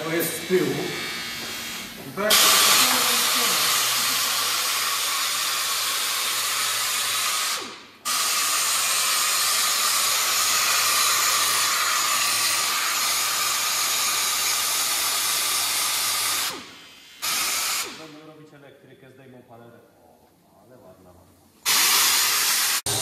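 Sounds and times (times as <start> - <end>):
angle grinder sanding metal: 2.3 - 7.1.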